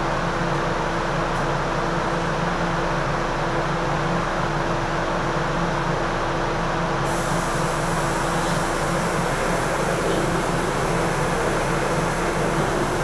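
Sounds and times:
exhaust fan hum: 0:00.0 - 0:13.0
gas burner rushing: 0:07.1 - 0:13.0.

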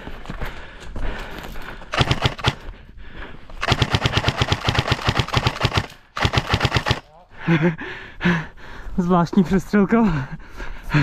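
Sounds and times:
airsoft gun firing full-auto: 0:01.9 - 0:02.6, 0:03.6 - 0:07.1.

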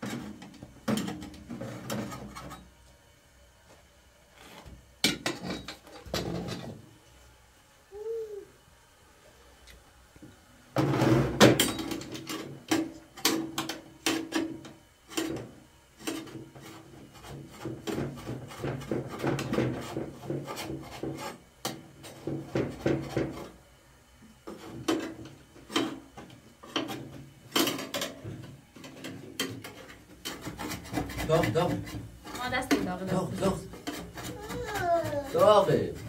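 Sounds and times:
metal spatula scraping tray: 0:29.5 - 0:36.0.

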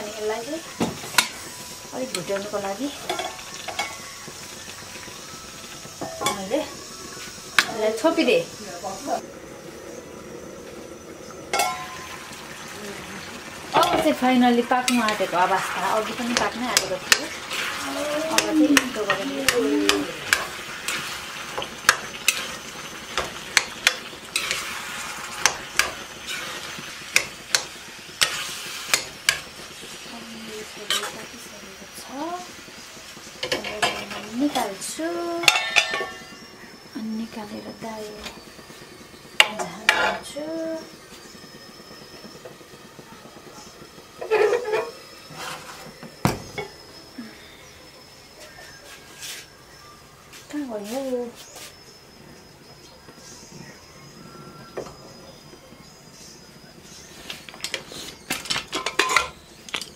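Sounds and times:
vegetables sizzling: 0:00.0 - 0:59.9
metal pot clattering: 0:11.5 - 0:12.2, 0:35.4 - 0:36.4, 0:44.2 - 0:46.8, 0:57.6 - 0:59.9
metal spatula scraping a wok: 0:14.8 - 0:29.5, 0:30.8 - 0:31.3, 0:35.4 - 0:36.4, 0:44.2 - 0:45.9.

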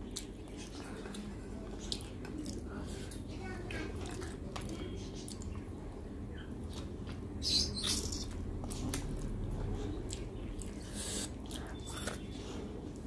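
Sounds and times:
chewing: 0:00.0 - 0:05.7, 0:08.3 - 0:13.0.

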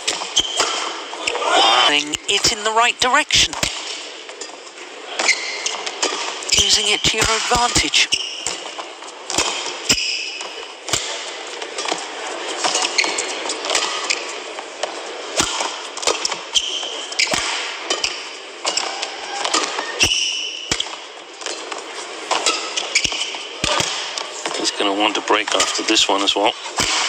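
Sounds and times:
arena background noise: 0:00.0 - 0:27.0
shoe squeaks on court floor: 0:00.3 - 0:01.4, 0:05.2 - 0:05.8, 0:22.5 - 0:23.5
racket hitting shuttlecock: 0:03.5 - 0:04.5, 0:08.4 - 0:14.3, 0:15.4 - 0:16.4, 0:17.2 - 0:24.6, 0:26.8 - 0:27.0.

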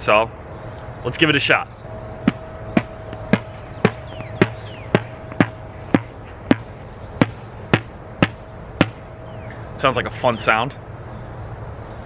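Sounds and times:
ball tapping on racquet: 0:02.3 - 0:09.0.

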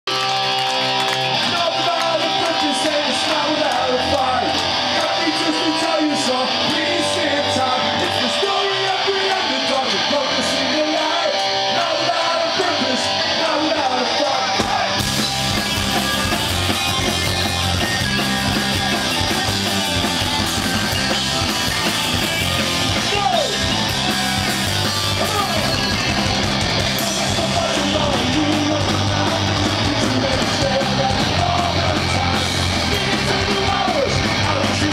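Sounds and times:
bass: 0:00.0 - 0:34.9
electric guitar: 0:00.1 - 0:34.9
person singing: 0:01.3 - 0:22.0, 0:27.0 - 0:34.9
drums and cymbals: 0:14.5 - 0:34.9.

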